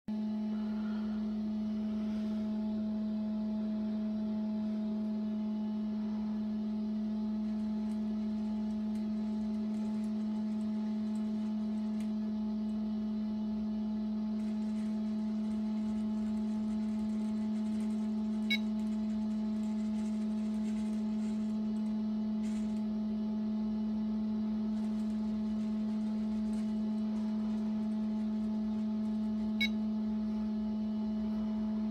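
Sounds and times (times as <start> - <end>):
small electric motor humming: 7.0 - 13.2, 14.0 - 23.2, 24.6 - 30.6.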